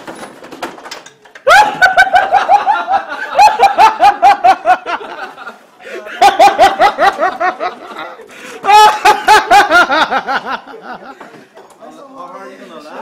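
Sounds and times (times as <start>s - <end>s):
loud rapid laughter: 1.5s - 11.0s.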